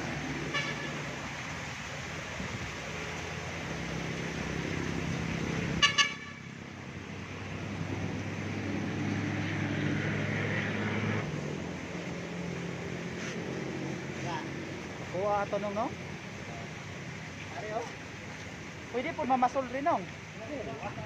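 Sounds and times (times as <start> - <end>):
car horn toot: 0.5 - 0.9, 5.8 - 6.5.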